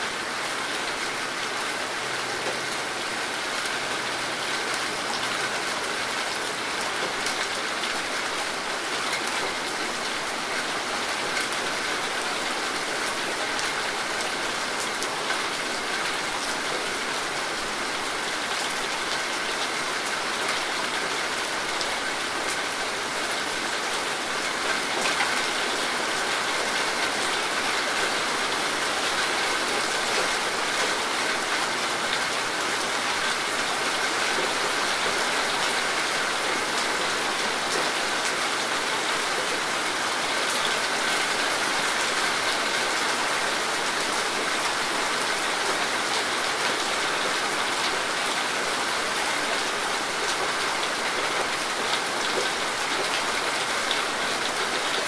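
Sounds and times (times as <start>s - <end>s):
rain falling on foliage: 0.0s - 55.0s.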